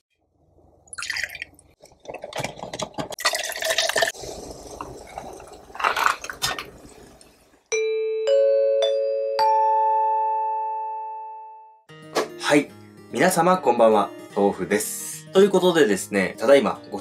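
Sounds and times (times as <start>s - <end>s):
liquid pouring into a glass: 0.9s - 2.3s, 3.2s - 7.5s
bell-like chime melody: 7.7s - 11.8s.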